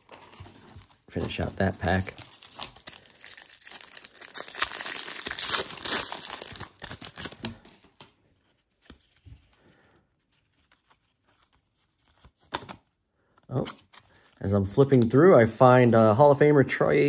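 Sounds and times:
foil wrapper crinkling and tearing: 0.0 - 8.0
cards being handled: 0.0 - 15.3.

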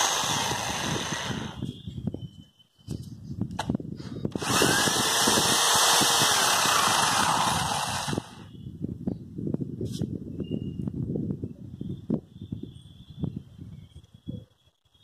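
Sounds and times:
electric drill boring into concrete: 0.0 - 1.7, 4.3 - 8.5.

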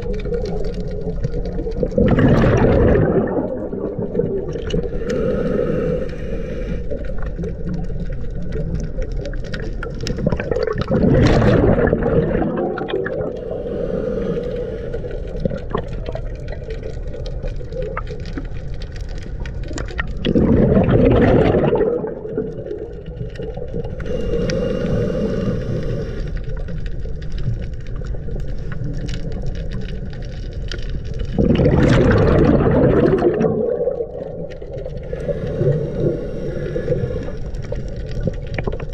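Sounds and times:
rush of exhaled bubbles: 0.0 - 38.9
regulator inhalation hiss: 4.8 - 7.0, 13.3 - 15.2, 24.0 - 26.8, 35.0 - 37.9.

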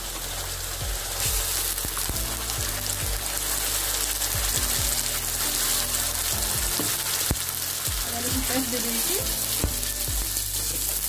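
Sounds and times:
paste sizzling in hot oil: 0.0 - 11.0.

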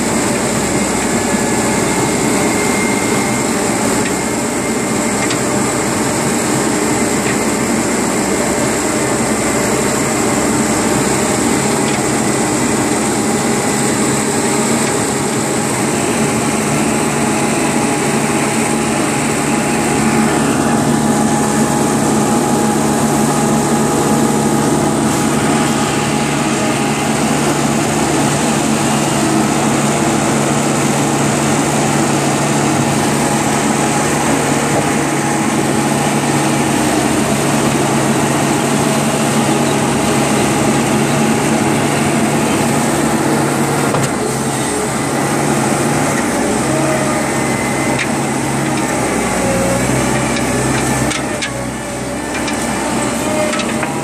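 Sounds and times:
truck engine running: 0.0 - 54.0.

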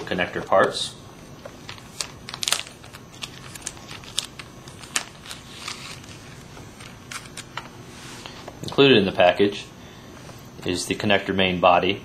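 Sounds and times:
plastic bag crinkling: 1.6 - 7.6.

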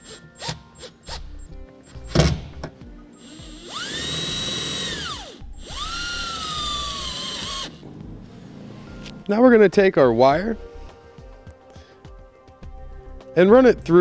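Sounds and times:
cordless driver whining: 3.2 - 7.8.

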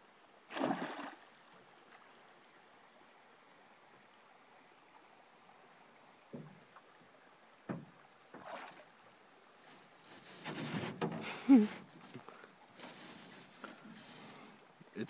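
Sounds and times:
fish splashing out of water: 0.5 - 1.2
dull knocks on canoe hull: 7.7 - 8.6.

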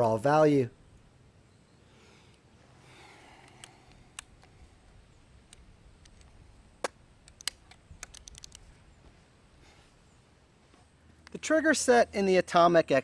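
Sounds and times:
small objects clicking on wood: 7.2 - 8.6.

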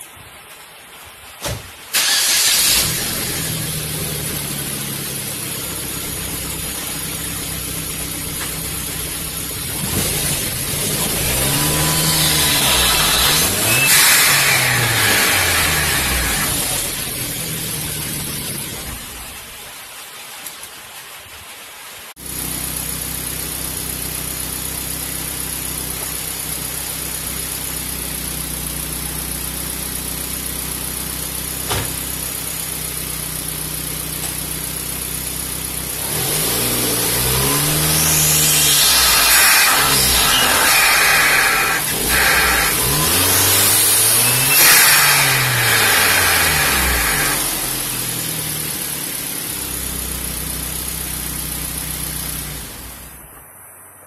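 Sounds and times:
car engine idling and revving: 1.9 - 19.7, 22.2 - 53.9.

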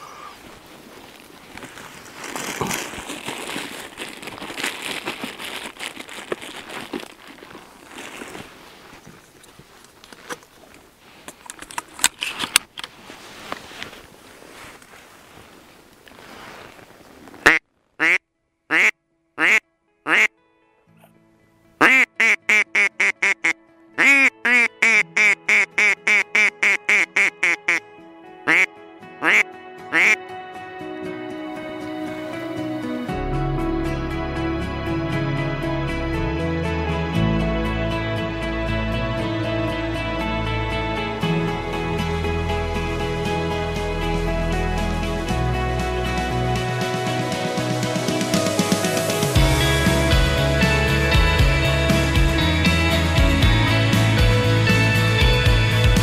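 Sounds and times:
close rustling and crinkling: 0.3 - 18.0
duck quacking: 17.4 - 20.3, 21.8 - 27.8, 28.5 - 30.2.

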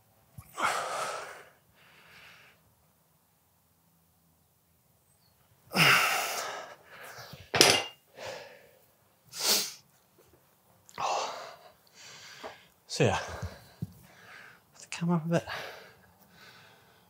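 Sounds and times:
man breathing out hard: 0.5 - 2.6, 5.7 - 7.4, 8.1 - 8.8
dumbbells clanking on floor: 7.5 - 8.0.

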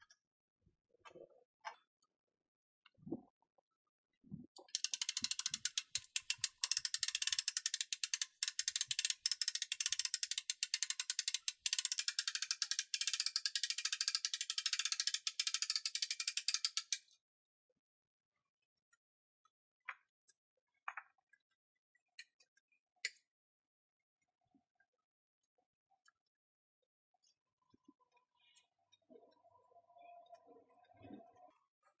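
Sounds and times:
winch ratchet clicking: 4.8 - 17.0.

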